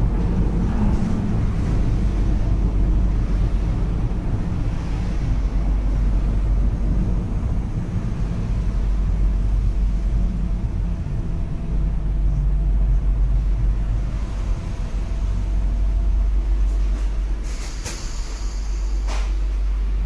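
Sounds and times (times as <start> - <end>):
train running gear rumble: 0.0 - 20.0
high hiss: 17.4 - 19.4.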